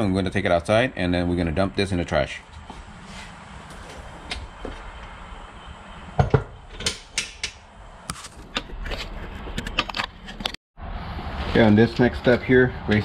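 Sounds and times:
objects knocking and clunking: 6.2s - 10.6s.

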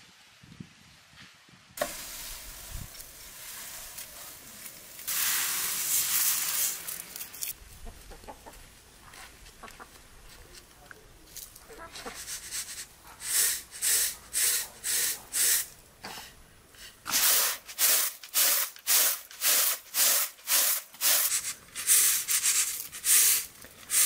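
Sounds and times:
grain swishing on metal tray: 1.8s - 7.2s, 12.0s - 15.7s, 17.1s - 24.0s.

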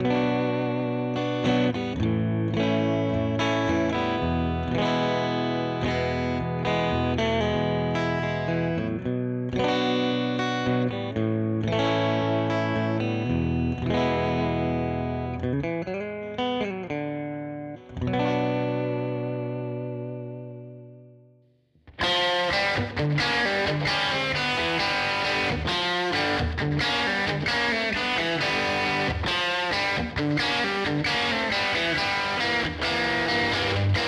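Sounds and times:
clean electric guitar riff: 0.0s - 34.0s.

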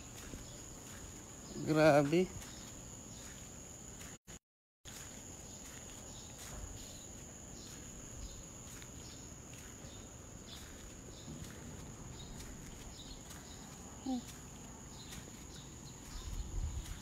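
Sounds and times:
footsteps ticking: 0.0s - 4.2s, 4.9s - 17.0s
high-pitched insect trill: 0.0s - 4.2s, 4.9s - 17.0s
street ambience: 0.0s - 4.2s, 4.9s - 17.0s.

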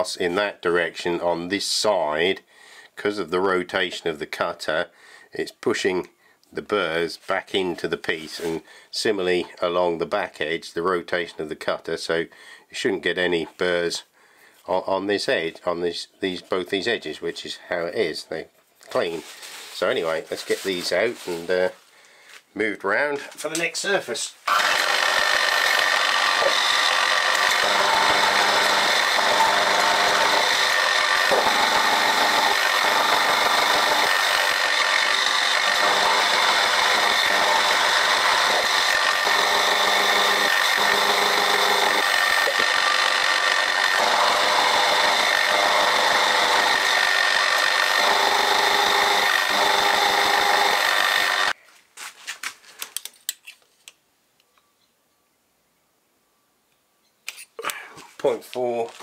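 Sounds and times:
milling machine cutting steel: 24.5s - 51.5s.

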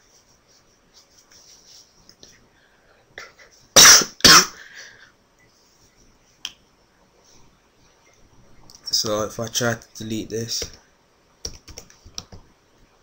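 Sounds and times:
person coughing: 3.2s - 5.0s.

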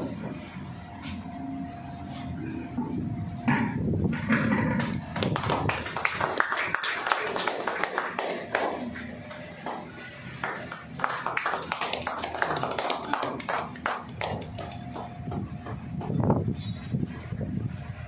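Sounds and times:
sharp taps or claps: 5.2s - 16.2s
faint voices murmuring: 7.2s - 15.9s.

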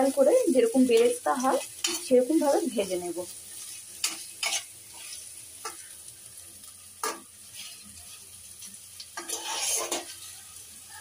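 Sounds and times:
onions sizzling in hot oil: 0.0s - 11.0s
spatula scraping a pan: 0.9s - 2.6s, 3.4s - 6.0s, 7.0s - 11.0s.

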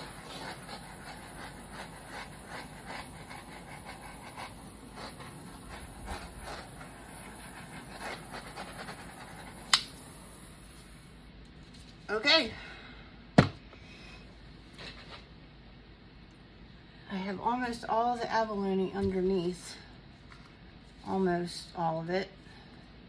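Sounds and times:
heat tool hissing: 0.0s - 11.3s.

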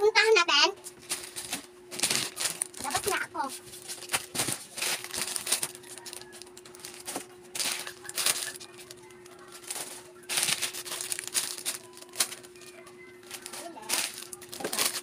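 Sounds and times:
faint steady hum: 0.0s - 15.0s
plastic packets crinkling: 1.0s - 15.0s.

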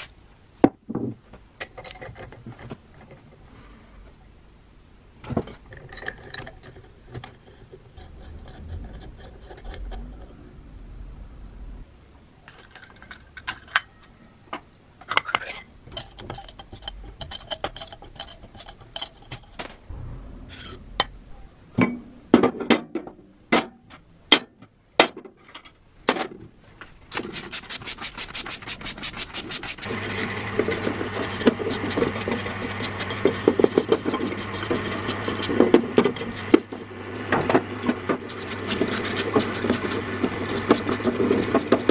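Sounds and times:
brush scrubbing: 27.1s - 41.9s
screwdriver scraping rust: 27.1s - 41.9s
stream of solvent: 28.7s - 41.9s
parts washer humming: 29.8s - 41.9s.

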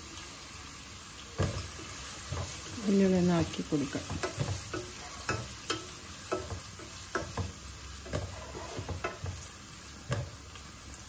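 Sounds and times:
onions sizzling in pot: 0.0s - 11.0s
pot knocking and rattling: 4.0s - 9.5s.

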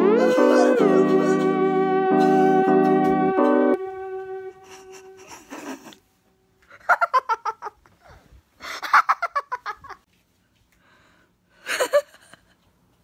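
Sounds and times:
young women giggling: 4.6s - 6.0s, 11.6s - 12.6s.

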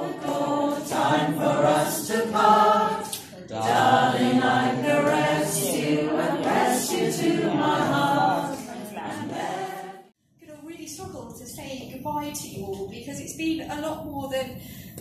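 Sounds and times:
choir singing: 0.0s - 10.2s.

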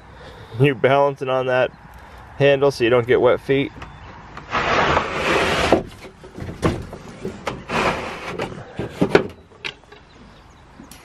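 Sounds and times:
wooden door scraping: 4.4s - 9.4s
door knocks and rattles: 6.3s - 7.6s.

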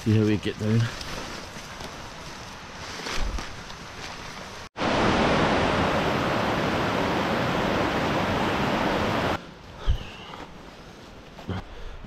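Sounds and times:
stream rushing over rocks: 4.8s - 9.4s.

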